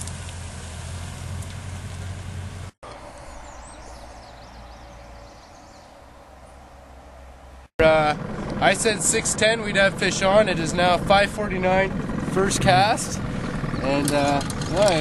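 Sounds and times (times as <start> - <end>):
truck engine running: 0.0 - 15.0
faint bird chirps: 3.0 - 7.6.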